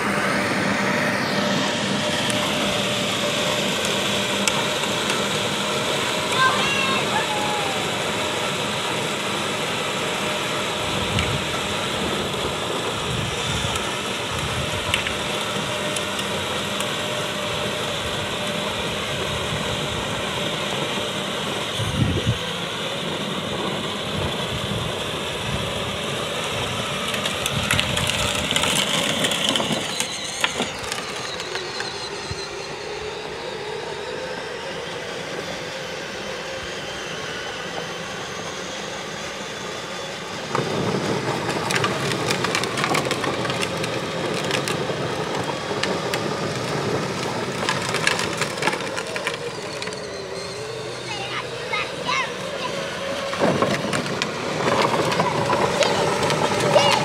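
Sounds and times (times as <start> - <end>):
plastic wheels rolling on road: 0.0 - 35.5, 40.1 - 57.0
electric motor hum: 0.0 - 57.0.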